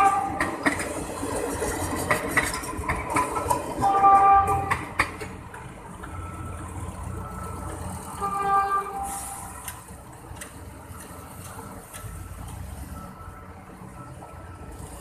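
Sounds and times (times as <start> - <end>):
train horn blasts: 0.0 - 0.6, 3.8 - 4.9, 8.2 - 9.5
rail clicks: 0.0 - 6.7, 9.0 - 12.6
train rumbling: 0.0 - 15.0.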